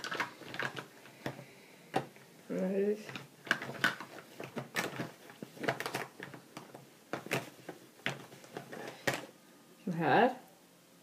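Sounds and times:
makeup products clicking and knocking: 0:00.0 - 0:02.2, 0:03.0 - 0:09.3.

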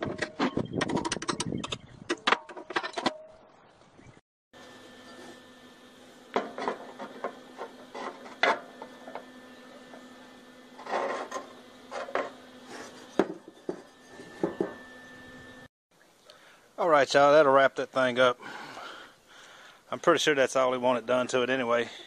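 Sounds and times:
steady hum: 0:04.6 - 0:15.7.

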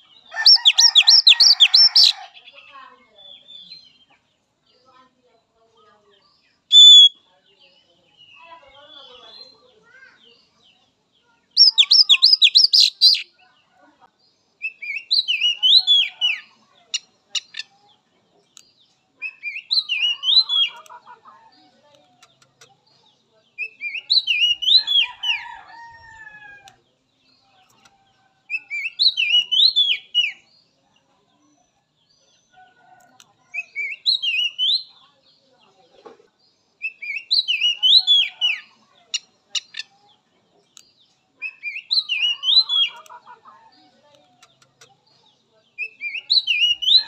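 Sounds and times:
bird singing high phrases: 0:00.0 - 0:04.1, 0:06.2 - 0:13.5, 0:14.6 - 0:20.9, 0:22.1 - 0:26.3, 0:28.5 - 0:30.8, 0:33.5 - 0:35.5, 0:36.8 - 0:43.1, 0:44.3 - 0:47.0
faint low bird calls: 0:06.7 - 0:07.2.

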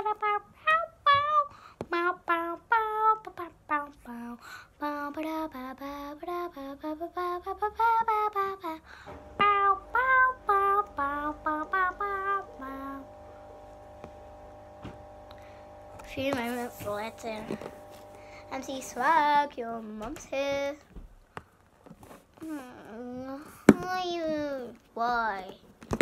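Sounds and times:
girl singing wordless tune: 0:00.0 - 0:13.2, 0:15.3 - 0:21.0, 0:22.4 - 0:25.6
faint steady drone: 0:09.0 - 0:19.6.

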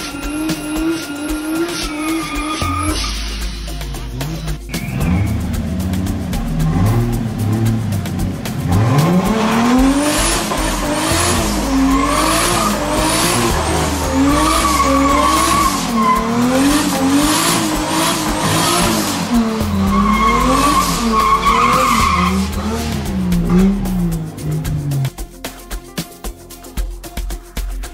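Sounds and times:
tyre squealing on paving: 0:00.0 - 0:03.2, 0:08.7 - 0:24.4
engine revving hard: 0:00.0 - 0:25.1.

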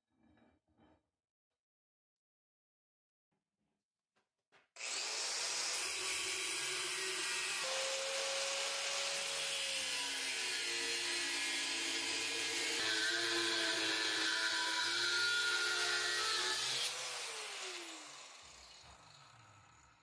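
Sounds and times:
angle grinder grinding steel: 0:04.8 - 0:19.9.

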